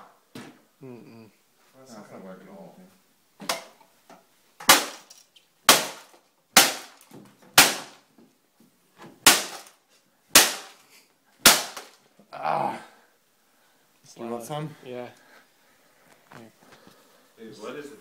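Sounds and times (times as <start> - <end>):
cane smashing plastic casing: 4.6 - 8.1, 9.2 - 12.1.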